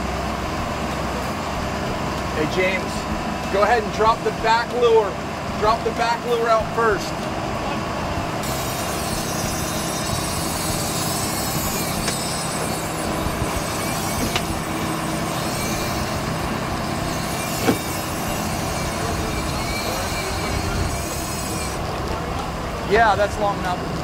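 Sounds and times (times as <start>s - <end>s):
boat engine running: 0.0s - 24.0s
sharp knocks: 17.6s - 17.9s.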